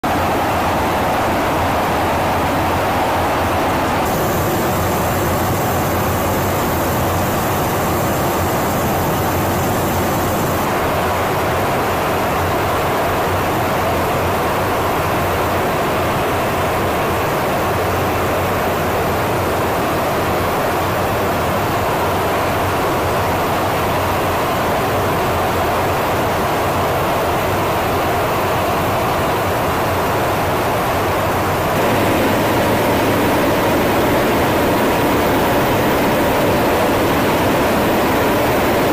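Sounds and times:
rushing airflow: 3.7 - 10.8, 31.6 - 38.9
low engine drone: 3.9 - 11.1, 31.6 - 38.9.

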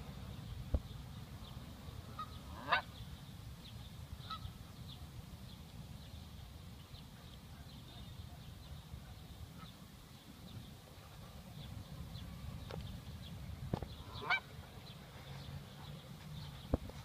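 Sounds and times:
goose honking: 2.1 - 2.9, 14.0 - 14.5.

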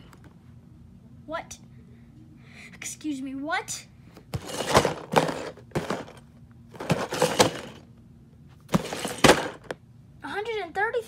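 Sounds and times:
cardboard box handled by hand: 4.3 - 6.2, 6.8 - 7.8, 8.7 - 9.8.

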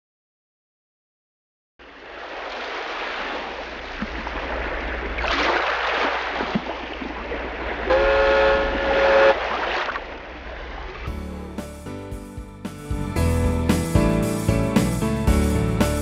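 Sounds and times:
horn blast: 7.9 - 9.6.

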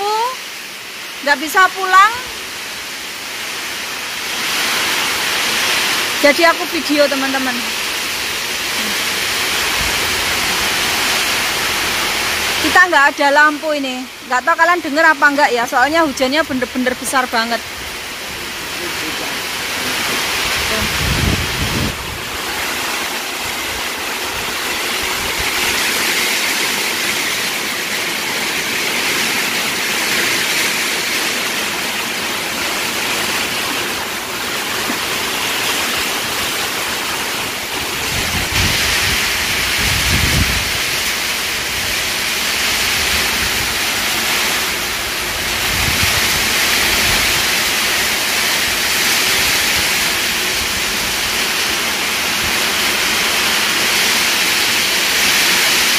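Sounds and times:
heavy rain pouring: 0.0 - 55.9
low wind gusts rumbling: 6.2 - 12.8, 19.5 - 27.7, 33.2 - 48.1.

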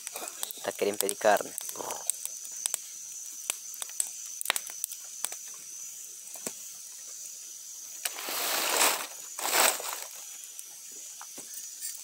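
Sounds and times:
campfire crackling and popping: 0.0 - 7.3, 7.9 - 12.0
rising hiss: 7.9 - 10.4.

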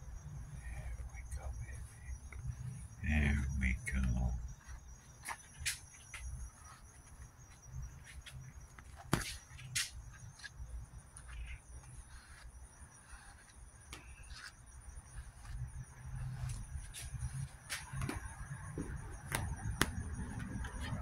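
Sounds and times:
insects chirring: 0.0 - 21.0
brush scratching through fur: 11.1 - 17.5.

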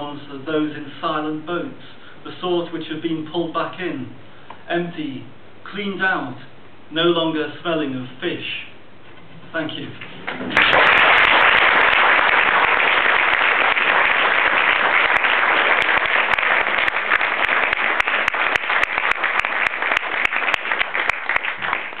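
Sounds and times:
audience applauding: 10.3 - 22.0.

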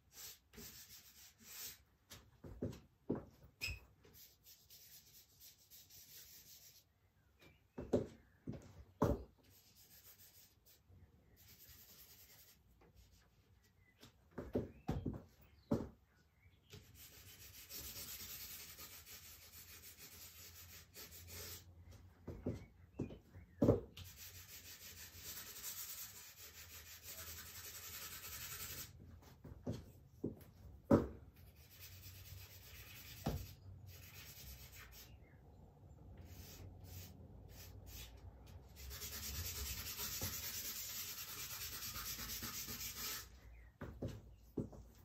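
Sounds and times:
charcoal scraping on paper: 16.8 - 21.7, 24.0 - 29.0, 36.3 - 43.3.

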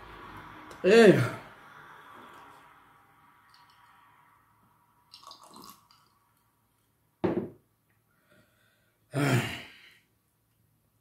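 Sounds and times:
wet eating sounds: 5.1 - 6.1.

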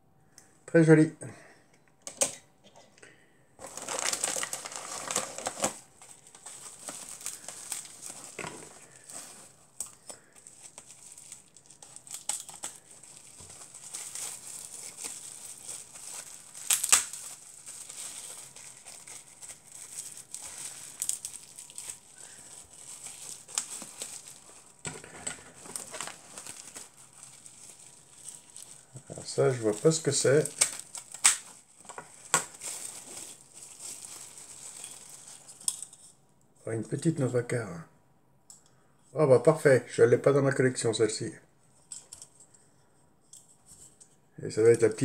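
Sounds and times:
bubble wrap crinkling: 3.6 - 36.2.

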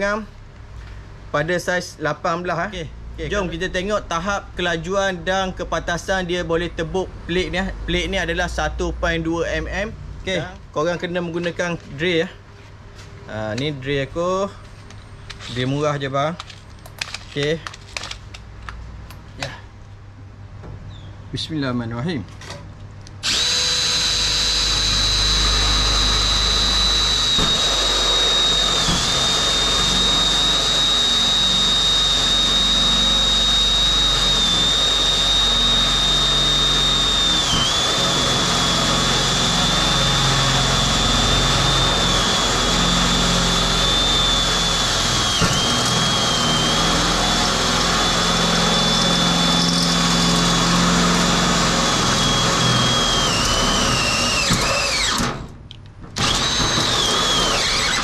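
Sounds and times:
electric drill whining through steel: 23.2 - 55.4, 56.2 - 58.0.

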